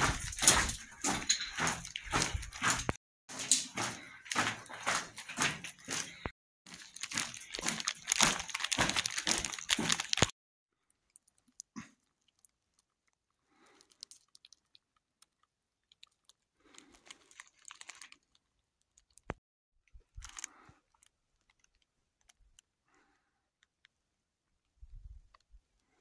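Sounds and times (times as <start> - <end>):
footsteps on gravel: 0.0 - 10.3.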